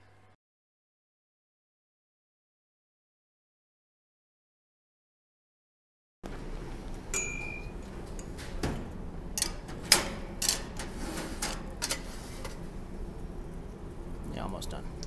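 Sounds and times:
metallic ring: 7.1s - 7.8s
cookware and utensils clattering: 7.2s - 12.6s.

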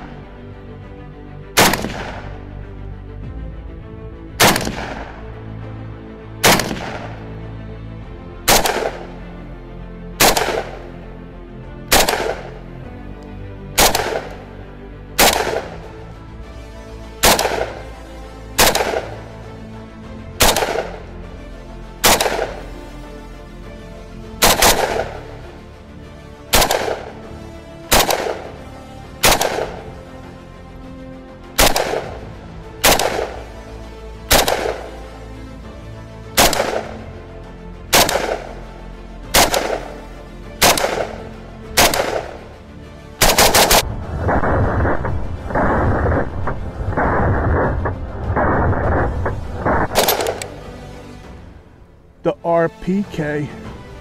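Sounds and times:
background music: 0.0s - 54.0s
rifle shots with ringing echo: 1.6s - 2.4s, 4.4s - 5.2s, 6.4s - 7.3s, 8.5s - 9.2s, 10.2s - 11.0s, 11.9s - 12.6s, 13.8s - 14.5s, 15.2s - 15.9s, 17.2s - 18.0s, 18.6s - 19.4s, 20.4s - 21.1s, 22.0s - 22.7s, 24.4s - 25.4s, 26.5s - 27.3s, 27.9s - 30.1s, 31.6s - 32.2s, 32.8s - 33.6s, 34.3s - 35.2s, 36.4s - 37.1s, 37.9s - 38.6s, 39.2s - 42.5s, 43.2s - 45.8s, 49.6s - 50.7s.

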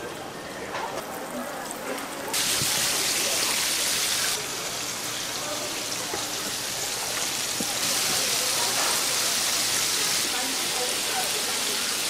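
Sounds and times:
pork frying in hot oil: 1.2s - 12.0s.

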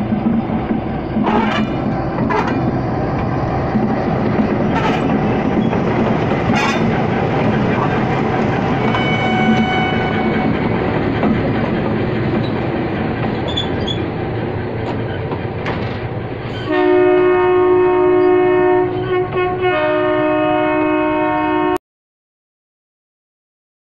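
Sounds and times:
train wheels rumbling on rails: 0.0s - 20.2s
loud train horn chord: 4.7s - 5.1s, 8.8s - 10.7s, 16.6s - 21.8s.

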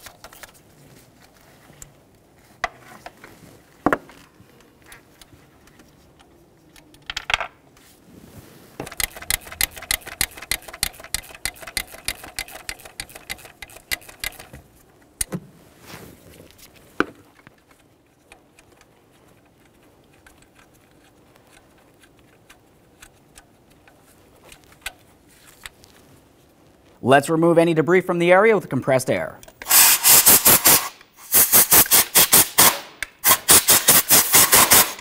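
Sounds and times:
ratchet clicking: 8.9s - 14.6s
tool ticking against metal: 8.9s - 14.6s.

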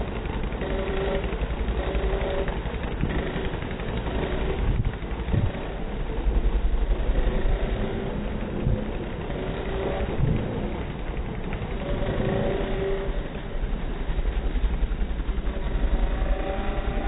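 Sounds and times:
scooter engines running: 0.0s - 17.0s
wind rumble on microphone: 4.4s - 9.1s, 10.0s - 11.4s.

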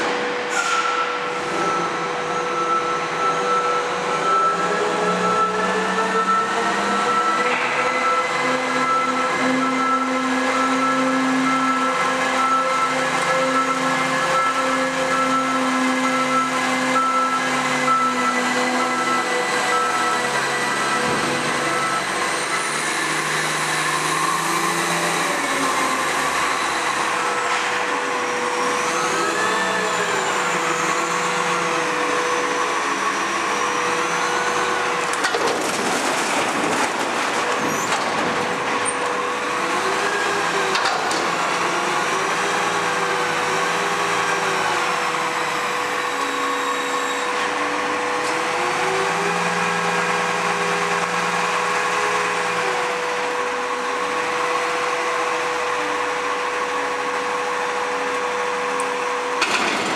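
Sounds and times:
hydraulic whine: 0.0s - 35.3s
truck engine revving: 1.2s - 59.9s
rubbish crashing into hopper: 34.9s - 39.3s, 59.4s - 59.9s.

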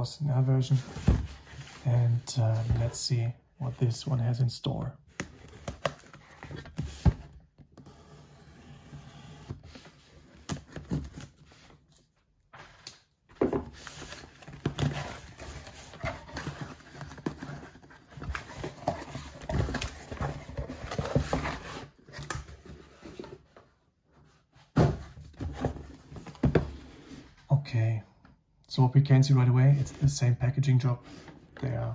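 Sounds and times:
cardboard scraping and rustling: 13.4s - 23.6s.

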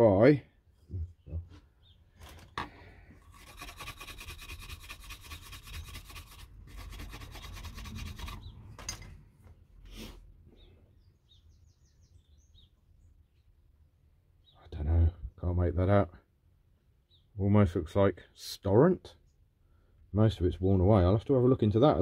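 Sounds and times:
rubbing on steel blade: 3.2s - 8.5s.

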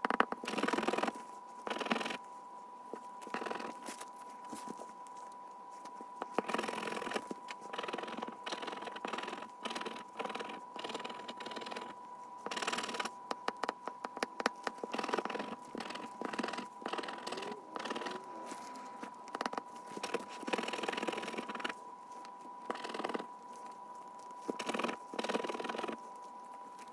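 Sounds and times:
tool tapping on card: 12.6s - 17.3s, 19.3s - 21.7s.

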